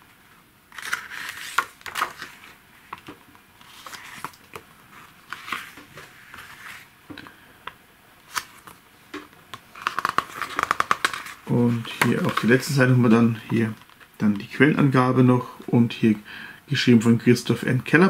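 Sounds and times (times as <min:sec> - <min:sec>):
book pages being turned: 0:00.7 - 0:06.9, 0:08.2 - 0:14.5.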